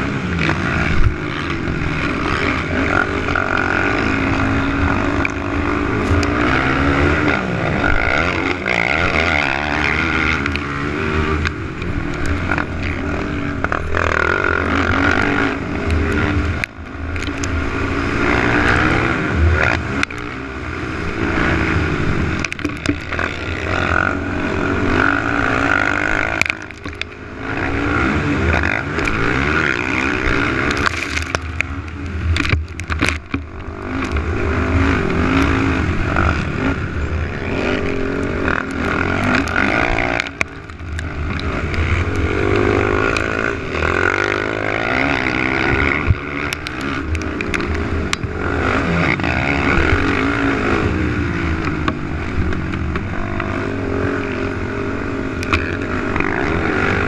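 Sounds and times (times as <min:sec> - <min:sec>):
atv engine revving: 0:00.0 - 0:57.0.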